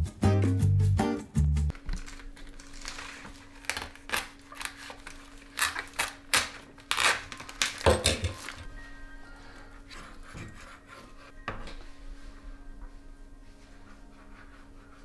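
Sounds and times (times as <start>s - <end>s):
plastic film crackling: 1.7s - 8.7s.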